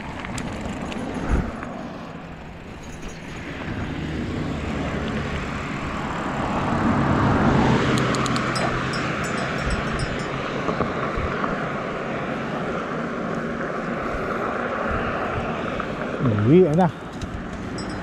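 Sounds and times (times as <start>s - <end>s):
bicycle tyres on pavement: 0.0s - 7.7s
car passing: 3.3s - 9.8s.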